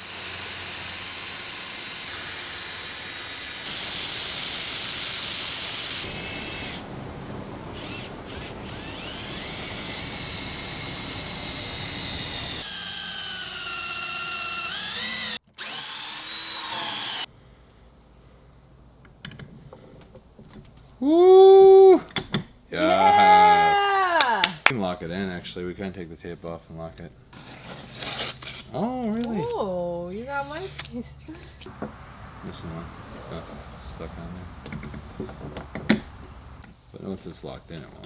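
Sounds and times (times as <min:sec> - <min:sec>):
power tool motor whine: 0:00.0 - 0:06.8, 0:07.7 - 0:17.3.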